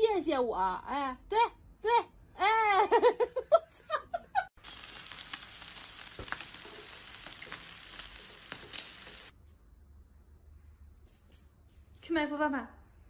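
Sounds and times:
food sizzling in frying: 4.6s - 9.3s.

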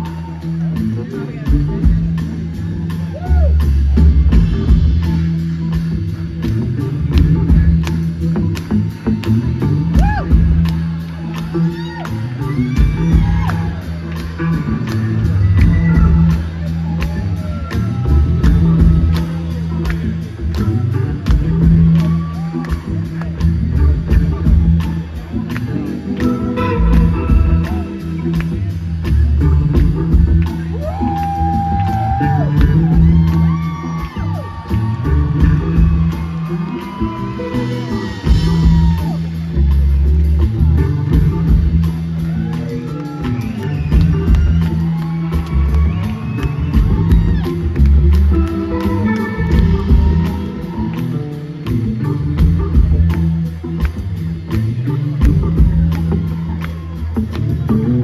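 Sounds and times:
audience whooping and shouting: 0.0s - 1.6s, 2.7s - 4.5s, 9.0s - 23.8s, 30.3s - 39.8s, 40.4s - 52.5s, 54.6s - 58.0s
bending electric guitar notes: 0.0s - 58.0s
blues-rock band playing: 0.0s - 58.0s
drums steady beat: 0.0s - 58.0s.

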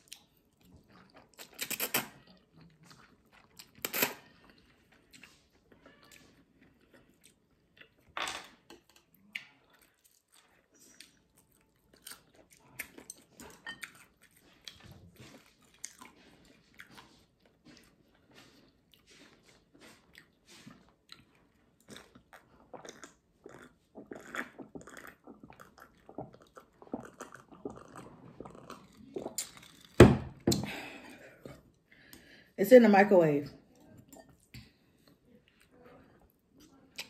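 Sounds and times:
person chewing: 0.0s - 8.2s, 8.9s - 32.3s
person drinking from a glass: 21.9s - 29.9s.

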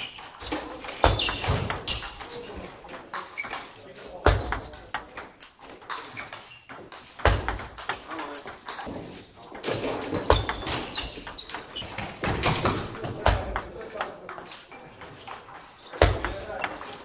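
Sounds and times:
table tennis balls clicking: 0.0s - 17.0s.

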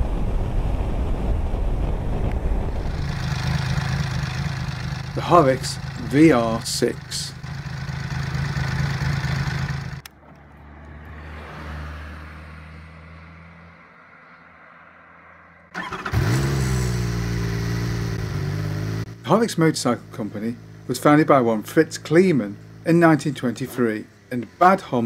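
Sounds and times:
motorcycle engine running: 2.8s - 10.1s, 15.8s - 25.0s
motorcycle engine starting: 2.9s - 10.2s, 15.7s - 25.0s.

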